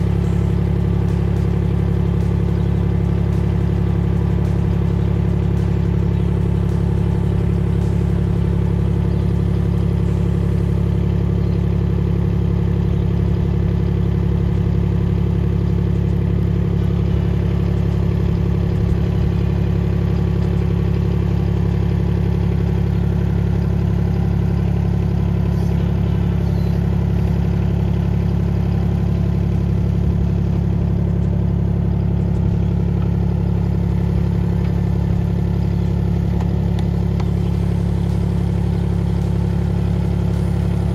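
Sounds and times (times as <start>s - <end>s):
small excavator engine running: 0.0s - 40.9s.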